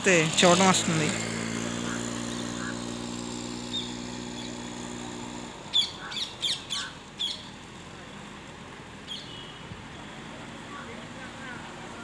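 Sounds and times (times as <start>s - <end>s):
motorcycle engine running: 0.0s - 12.0s
sharp high bird chirps: 5.7s - 7.5s, 9.1s - 9.6s.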